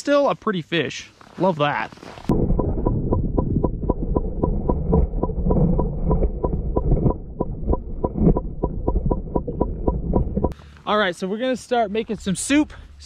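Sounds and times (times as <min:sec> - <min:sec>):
muffled underwater rumble: 0:02.3 - 0:10.6
sharp clicks underwater: 0:02.6 - 0:10.6.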